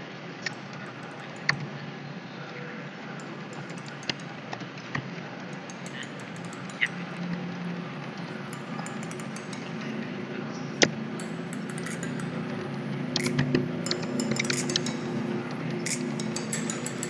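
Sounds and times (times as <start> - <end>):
low background hum: 0.5 - 17.0
keyboard keys clicking: 3.2 - 4.4, 5.5 - 17.0.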